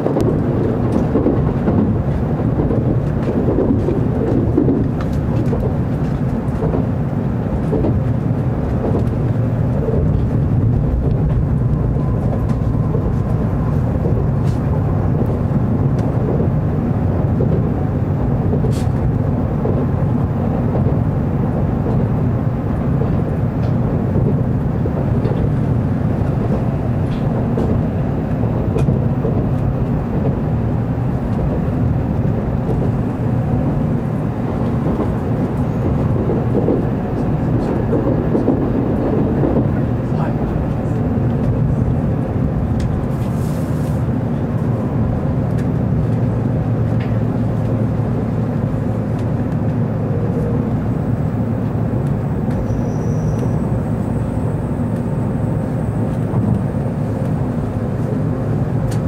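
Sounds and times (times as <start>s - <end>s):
train running rumble inside car: 0.0s - 59.0s.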